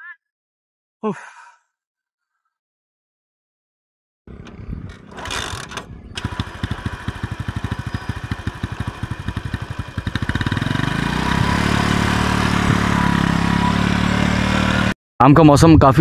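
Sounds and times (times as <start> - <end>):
small engine idling: 4.3 - 14.9.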